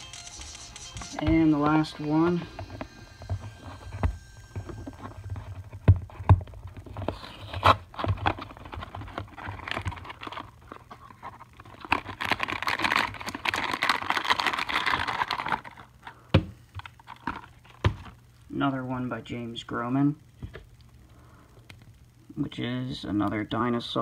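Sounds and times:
wrapper crinkling: 0:06.4 - 0:16.2.

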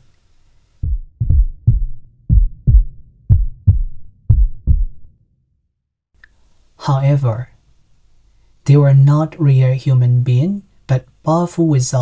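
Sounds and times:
heartbeat thumps: 0:00.8 - 0:05.1.

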